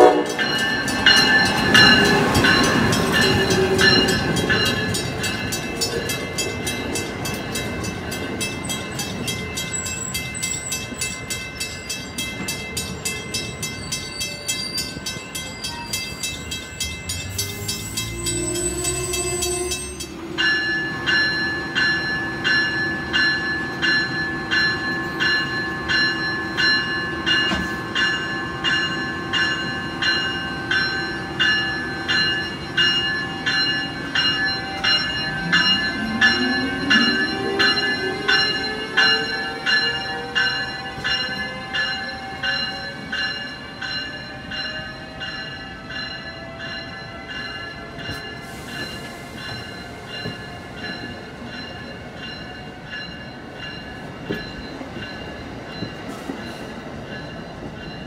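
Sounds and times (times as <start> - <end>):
bell ringing: 0.1 - 58.0
train wheels clicking over rail joints: 26.7 - 40.0.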